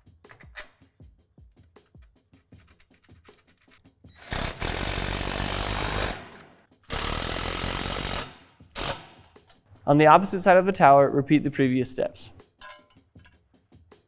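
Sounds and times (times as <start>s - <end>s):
small metal clicks: 1.6s - 3.9s.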